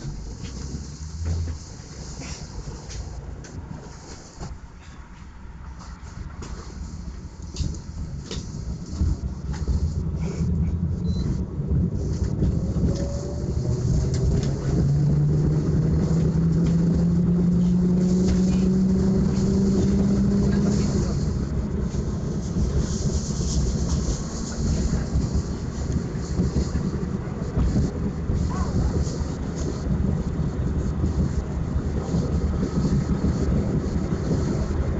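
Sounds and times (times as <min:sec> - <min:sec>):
tram rumbling on rails: 0:00.0 - 0:34.9
traction motor hum rising: 0:07.5 - 0:34.9.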